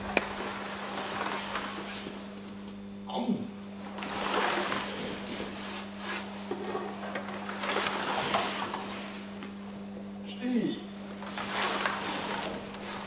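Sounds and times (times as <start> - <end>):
swishing cloth rustling: 0.0 - 2.4, 3.8 - 6.5, 7.4 - 9.4, 11.1 - 13.0
low electrical hum: 0.0 - 13.0.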